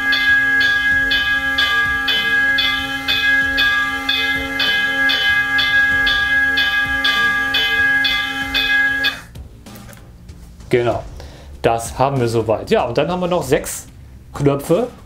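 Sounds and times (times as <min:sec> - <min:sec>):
electronic bell ringing: 0:00.0 - 0:09.3.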